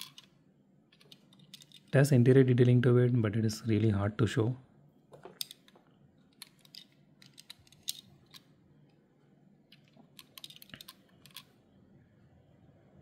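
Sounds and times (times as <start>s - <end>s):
metal toy car clicking in fingers: 9.8s - 11.5s.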